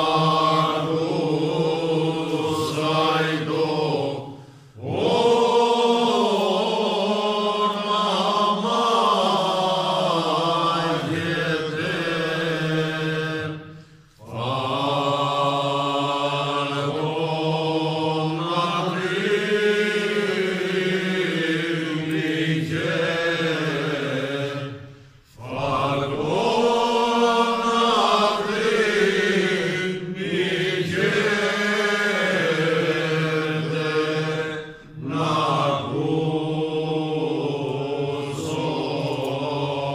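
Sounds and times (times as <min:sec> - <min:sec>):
men singing unaccompanied: 0:00.0 - 0:13.5, 0:25.4 - 0:39.9.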